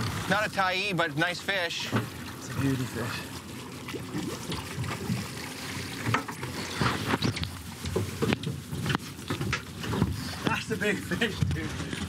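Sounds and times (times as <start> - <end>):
water splashing against a boat: 0.0 - 12.0
fish thrashing at the surface: 1.8 - 10.4.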